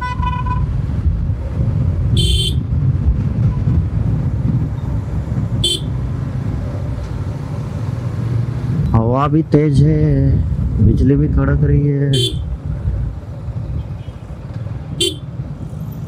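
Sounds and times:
vehicle horn toots: 0:00.0 - 0:00.7, 0:02.2 - 0:02.6, 0:05.6 - 0:06.0, 0:12.1 - 0:12.5, 0:15.0 - 0:15.3
motorcycle road rumble: 0:00.0 - 0:16.0
wind noise: 0:00.0 - 0:16.0.

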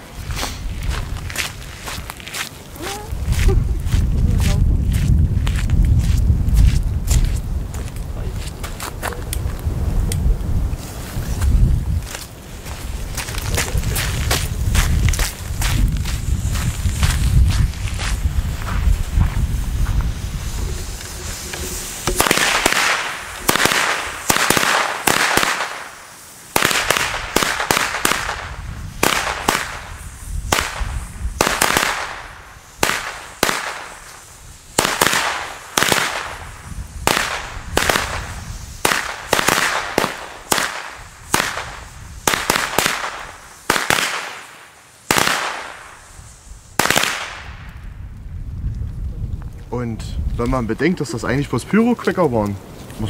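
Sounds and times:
firecracker bangs: 0:13.2 - 0:47.8
fuse hissing: 0:15.4 - 0:28.0.

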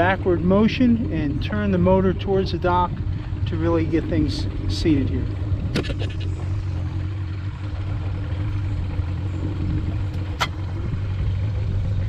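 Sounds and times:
boat motor idling: 0:00.0 - 0:12.0.

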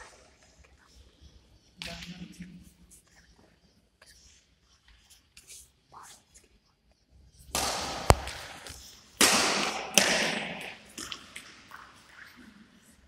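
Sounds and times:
racket striking shuttlecock: 0:07.5 - 0:11.5.

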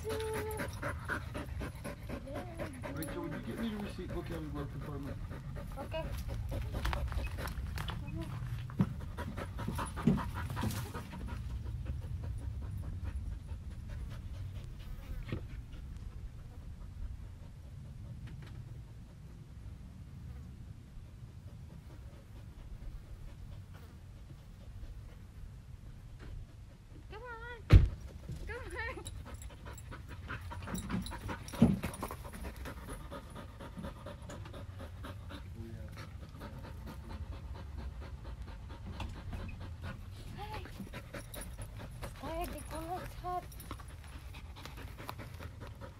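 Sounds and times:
dog panting: 0:00.0 - 0:19.5, 0:21.0 - 0:27.4, 0:28.1 - 0:45.9
loud thump: 0:27.7 - 0:28.0.

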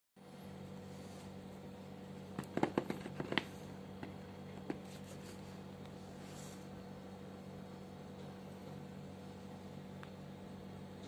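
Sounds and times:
steady low hum: 0:00.2 - 0:11.0.

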